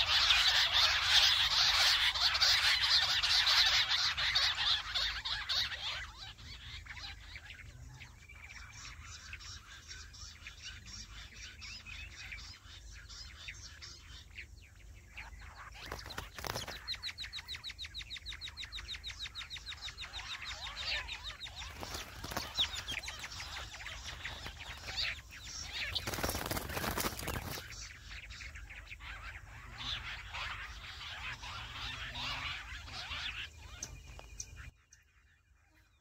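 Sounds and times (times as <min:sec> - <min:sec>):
bird chirps: 0:00.0 - 0:36.0
quails calling high repeated notes: 0:00.0 - 0:36.0
wings flapping: 0:15.8 - 0:17.0, 0:21.3 - 0:27.8.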